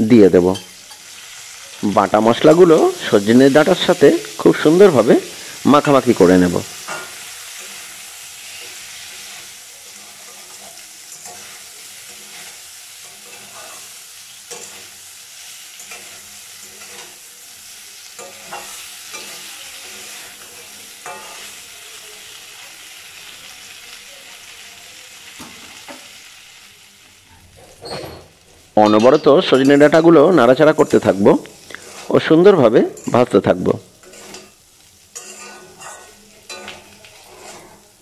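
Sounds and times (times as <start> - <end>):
food sizzling in oil: 0.0 - 38.0
metal spatula scraping a pan: 6.7 - 21.7, 27.4 - 33.4, 34.0 - 38.0.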